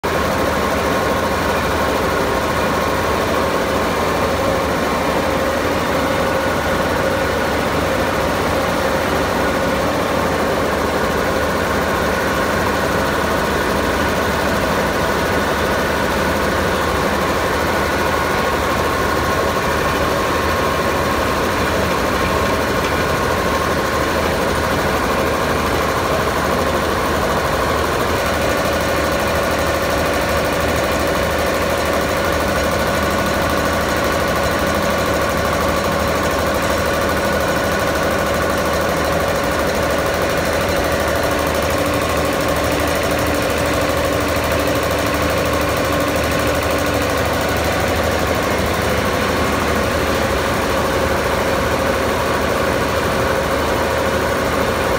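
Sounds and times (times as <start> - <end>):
refrigeration compressor running: 0.0 - 54.9.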